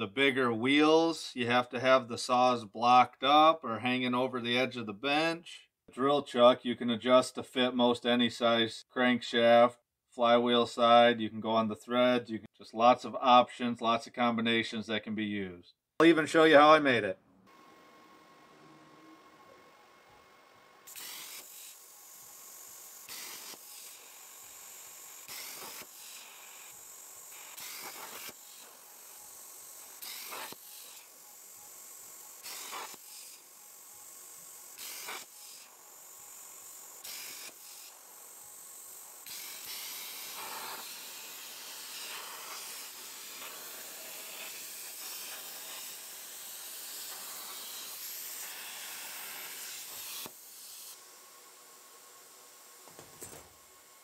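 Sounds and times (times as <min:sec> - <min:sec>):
plasma cutter hissing: 0:20.8 - 0:54.0.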